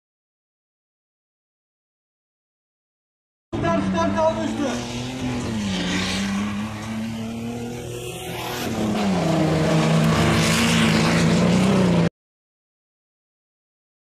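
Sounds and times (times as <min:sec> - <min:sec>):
engine running hard: 0:03.6 - 0:12.1.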